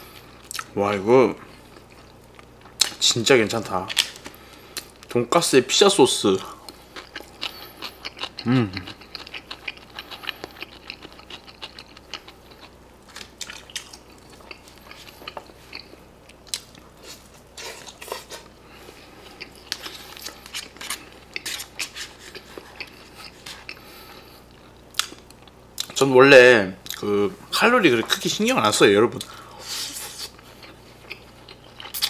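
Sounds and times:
chewing and biting food: 6.7 - 26.0, 29.2 - 32.0.

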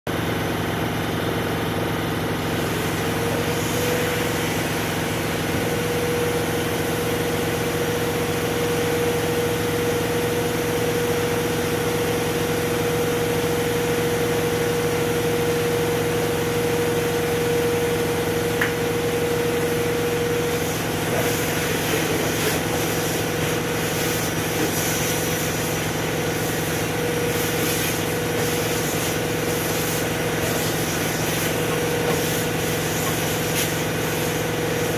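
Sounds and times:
vacuum cleaner running: 0.1 - 34.9
vacuum nozzle sucking hiss: 20.4 - 34.9.

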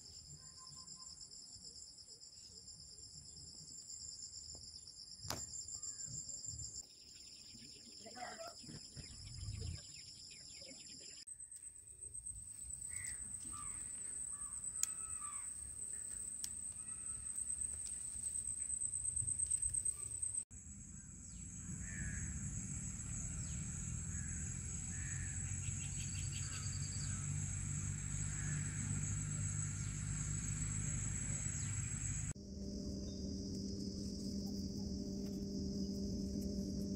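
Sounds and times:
high-pitched insect drone: 9.0 - 36.9
birds calling: 12.8 - 17.3, 23.5 - 32.3
low rumble: 27.1 - 36.9.

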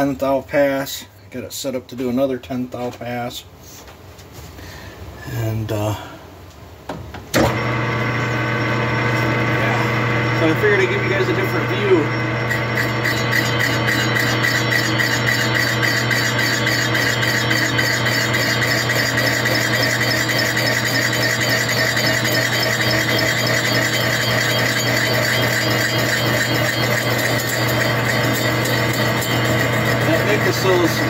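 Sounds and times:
lathe motor and gear hum: 7.4 - 31.0.

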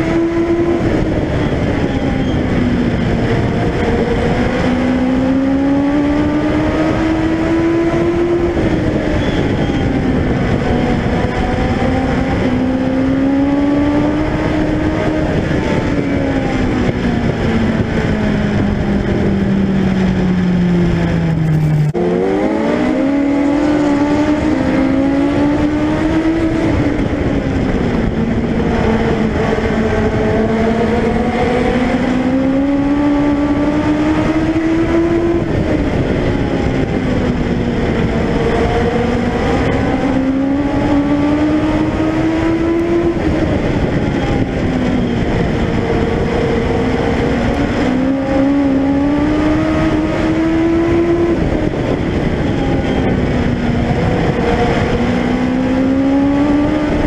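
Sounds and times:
motorcycle engine at racing speed: 0.0 - 57.0.

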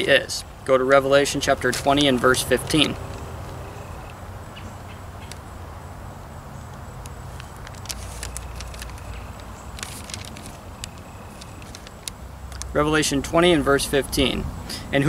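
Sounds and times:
low outdoor rumble: 0.0 - 15.0
pages being turned: 7.3 - 12.7.

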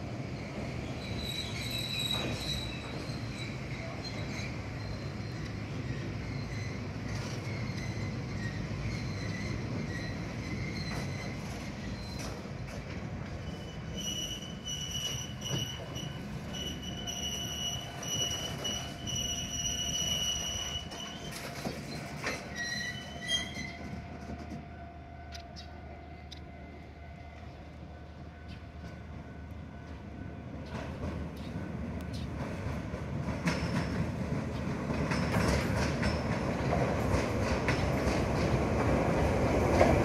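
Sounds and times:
rumble of wheels on rail: 0.0 - 40.0
locomotive wheels squealing: 0.4 - 24.7, 33.4 - 34.1, 34.9 - 36.8.

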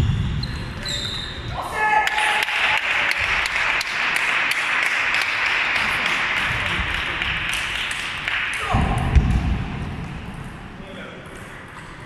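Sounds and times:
crowd applauding: 2.0 - 8.7.

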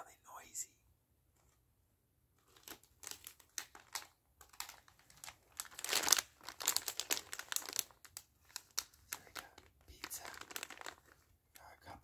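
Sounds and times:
plastic packaging crinkling: 2.4 - 11.3.

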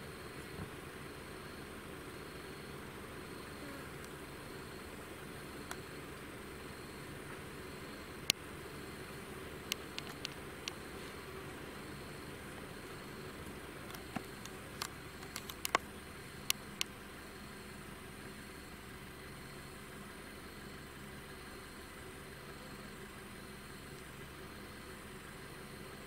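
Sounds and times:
vehicle engine idling: 0.0 - 26.0
sharp clicks: 9.7 - 10.8, 13.8 - 17.0.

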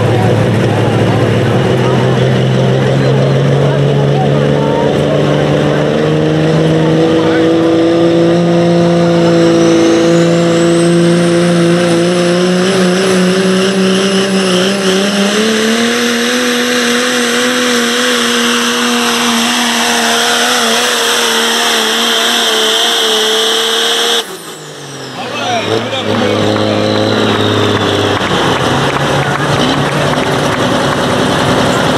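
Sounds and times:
diesel engine running flat out: 0.0 - 31.9
turbo whistle: 18.4 - 28.3.

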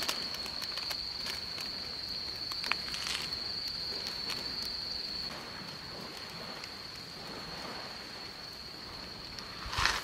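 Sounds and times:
clicks and crackles on grill: 0.0 - 7.8
cricket trilling: 0.0 - 10.0.

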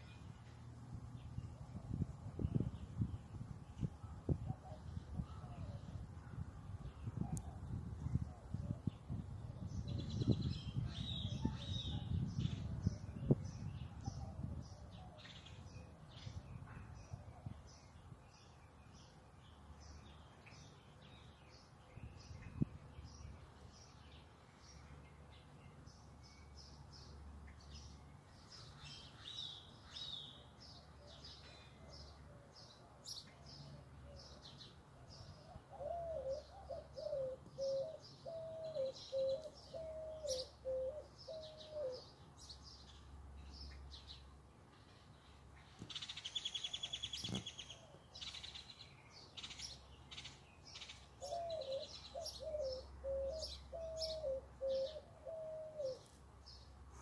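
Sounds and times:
small birds chirping: 0.0 - 57.0
dove cooing: 35.5 - 42.1, 51.2 - 56.1.

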